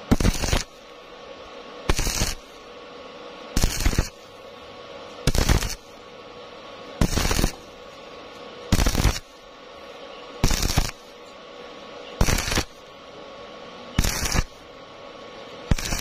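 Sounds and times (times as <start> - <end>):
welding arc crackling: 0.0 - 1.1, 1.9 - 2.7, 3.6 - 4.3, 5.2 - 6.0, 7.0 - 7.9, 8.7 - 9.5, 10.4 - 11.2, 12.2 - 12.9, 14.0 - 14.7, 15.7 - 16.0
faint steady hum: 0.0 - 16.0.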